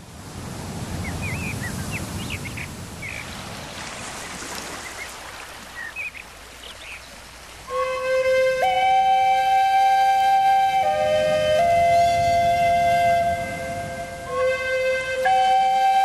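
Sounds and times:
bird calls: 0:01.0 - 0:03.4, 0:04.1 - 0:08.0
flute playing: 0:07.7 - 0:16.0.

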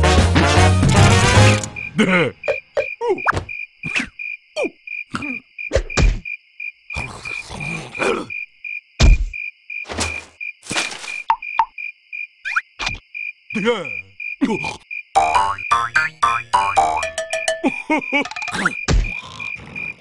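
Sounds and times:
insect-like chirping: 0:01.4 - 0:20.0.

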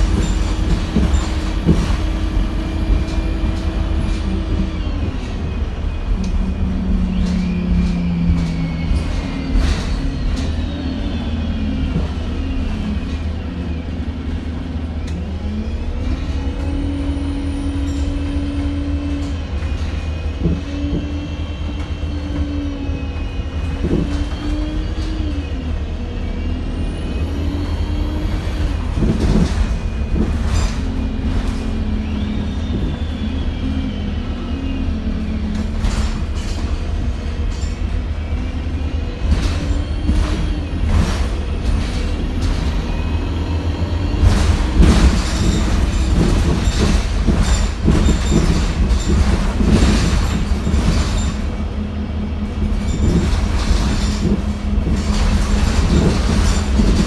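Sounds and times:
bus engine and road rumble: 0:00.0 - 0:57.0
body rattles and knocks: 0:44.2 - 0:51.4, 0:52.6 - 0:57.0.

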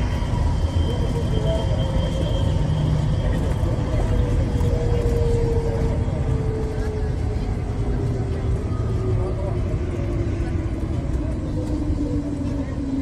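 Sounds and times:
faint train whine: 0:00.0 - 0:13.0
train rumbling through tunnel: 0:00.0 - 0:13.0.

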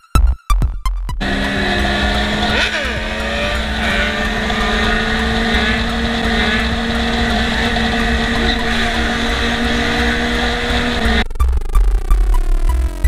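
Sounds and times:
motorcycle engine cruising: 0:01.2 - 0:11.2
wind and road noise: 0:01.2 - 0:11.2.

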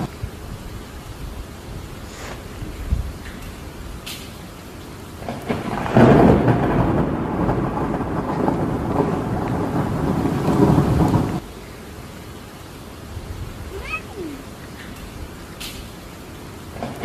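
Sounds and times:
thunder rumbling: 0:00.0 - 0:01.4, 0:05.1 - 0:11.5, 0:13.1 - 0:17.0
rain: 0:00.0 - 0:17.0.

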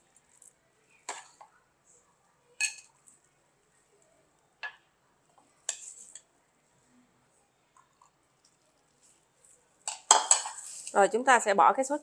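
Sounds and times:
metal spoon clinking on glass: 0:02.6 - 0:02.9.

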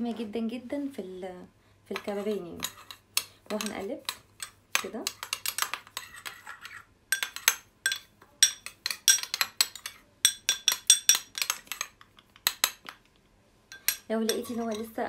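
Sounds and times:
spoon clinking in glass bowl: 0:07.1 - 0:13.0, 0:13.7 - 0:14.9.

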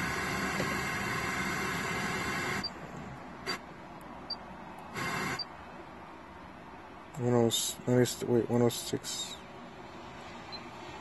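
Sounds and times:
radio static hissing: 0:00.0 - 0:02.8, 0:04.9 - 0:05.5.

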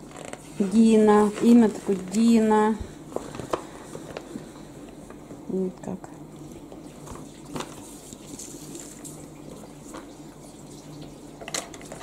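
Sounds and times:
low steady hum: 0:00.0 - 0:12.0
paper rustling: 0:07.0 - 0:09.2.

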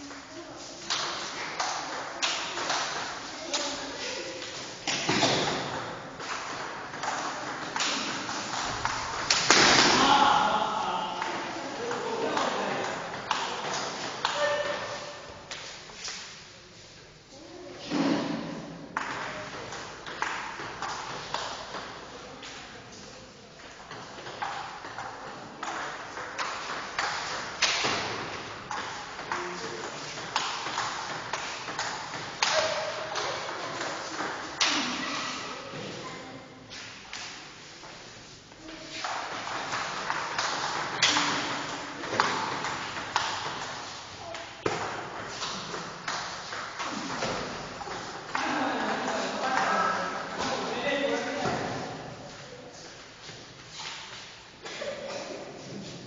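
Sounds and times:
table tennis ball hits: 0:39.1 - 0:48.4.

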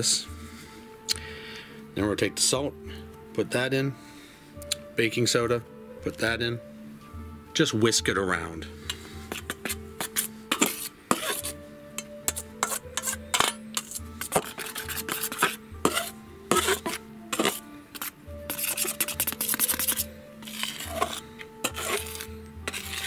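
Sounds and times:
knife scraping through flour: 0:08.9 - 0:23.0
knife tapping metal bowl: 0:12.0 - 0:18.1.

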